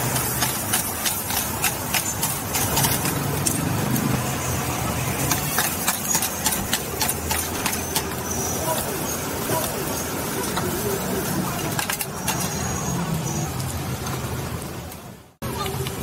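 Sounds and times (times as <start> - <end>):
steady rushing noise: 0.0 - 12.2.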